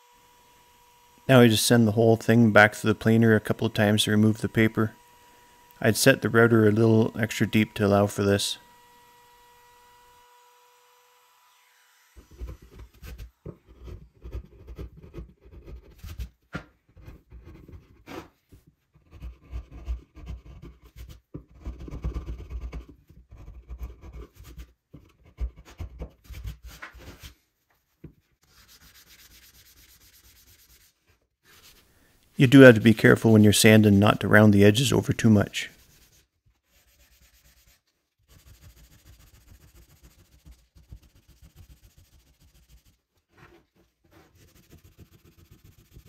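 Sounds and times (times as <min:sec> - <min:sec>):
sanding block rubbing wood: 0:28.4 - 0:31.9, 0:32.5 - 0:35.0, 0:35.6 - 0:43.1, 0:44.1 - 0:46.0.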